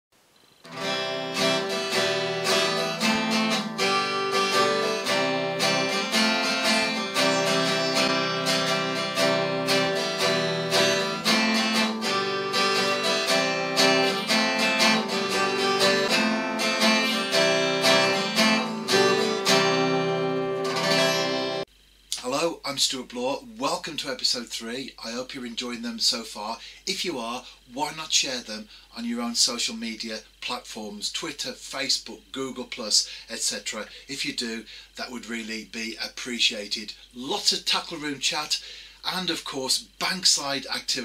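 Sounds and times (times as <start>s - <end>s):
acoustic guitar strumming: 0.6s - 21.7s.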